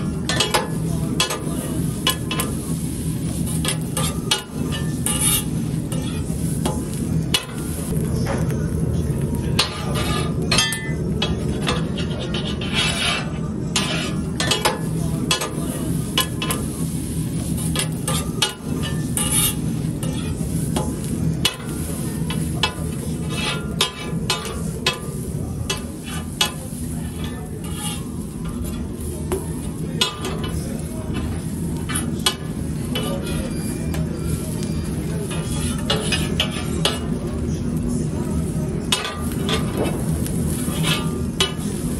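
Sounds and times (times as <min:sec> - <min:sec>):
sandwiches sizzling on griddle: 0:00.0 - 0:10.5, 0:12.6 - 0:41.9
knife scraping on steel: 0:03.6 - 0:06.4, 0:11.5 - 0:14.6, 0:17.8 - 0:20.5, 0:22.6 - 0:25.1, 0:25.7 - 0:28.9.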